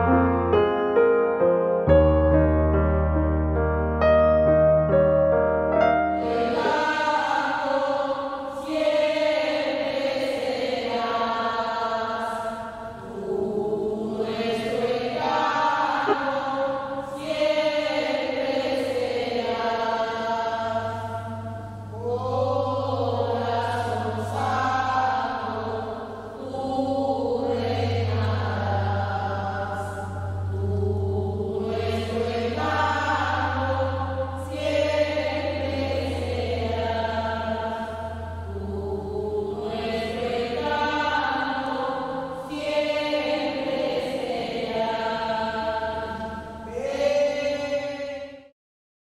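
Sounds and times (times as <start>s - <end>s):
electric keyboard bass: 0.0s - 7.2s, 19.0s - 42.8s
group singing a slow hymn: 6.0s - 48.5s.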